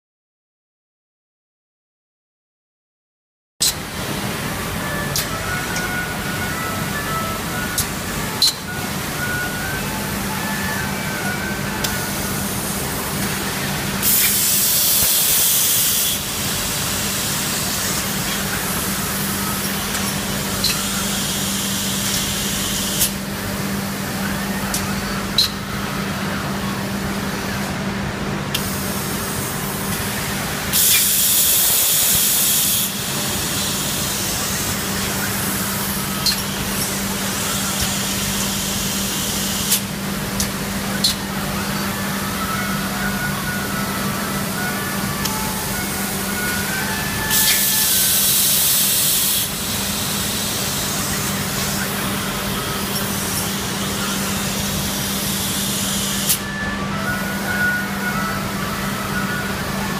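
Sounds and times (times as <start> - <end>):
machine hum with low tone: 3.6 - 59.9
compressed air hiss: 14.0 - 19.3, 30.7 - 34.8, 45.8 - 51.9.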